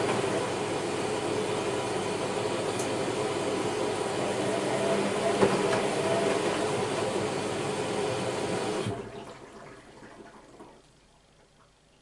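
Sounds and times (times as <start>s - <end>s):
washing machine drum tumbling: 4.3s - 10.6s.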